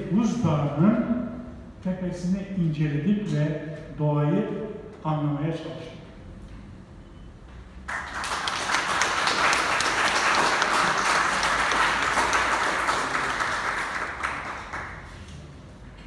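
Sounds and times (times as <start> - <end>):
audience applauding: 7.9 - 15.2.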